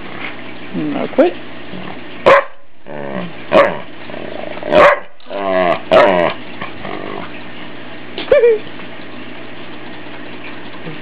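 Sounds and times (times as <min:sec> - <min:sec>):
dog barking: 0:02.2 - 0:02.6, 0:03.5 - 0:03.8, 0:04.7 - 0:05.2
dog growly grumbles: 0:02.8 - 0:07.4.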